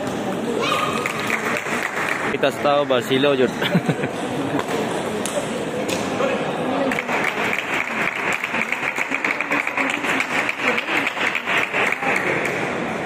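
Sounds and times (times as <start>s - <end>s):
spectators clapping: 0.9s - 3.0s, 6.8s - 12.9s.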